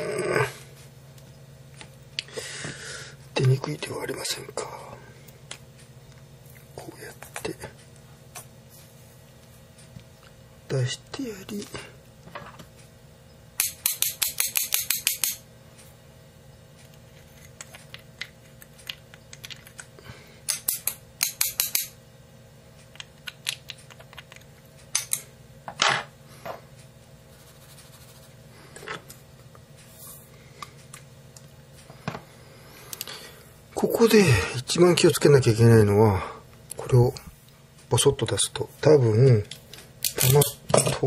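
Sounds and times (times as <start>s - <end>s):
hand tool rapid sharp clicks: 13.6s - 15.4s, 20.5s - 21.9s.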